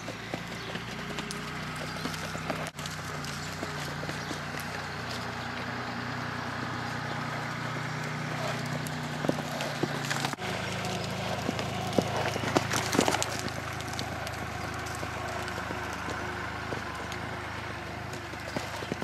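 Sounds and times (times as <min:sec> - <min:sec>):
horse hoofbeats on sand: 0:00.0 - 0:19.0.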